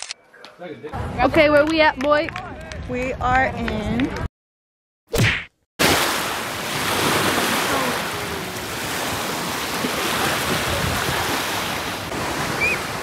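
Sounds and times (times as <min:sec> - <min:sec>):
surf washing over sand: 0:05.8 - 0:13.0.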